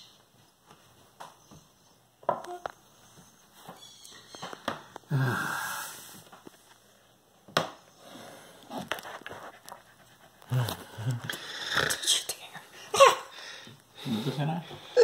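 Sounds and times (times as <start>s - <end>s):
person breathy vocal sound: 5.1s - 6.1s.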